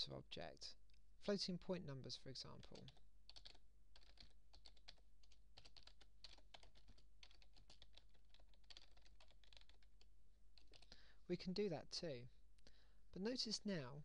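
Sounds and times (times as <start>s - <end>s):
typing on computer keyboard: 2.6s - 10.9s.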